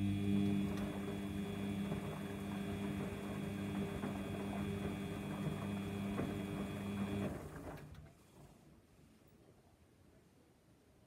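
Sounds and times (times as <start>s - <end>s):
washing machine motor humming: 0.0s - 8.1s.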